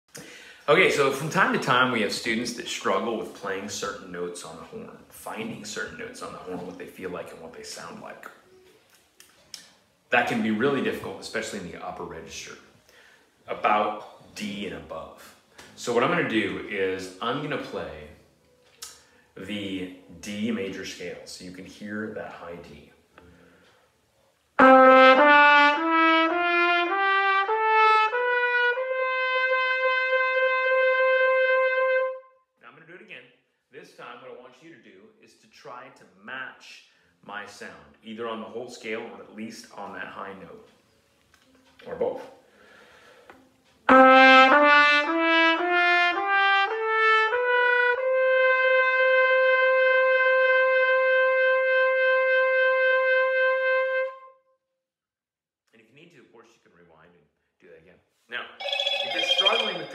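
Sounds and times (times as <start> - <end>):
trumpet playing a scale: 24.6 - 32.3, 43.8 - 54.3, 58.6 - 59.9.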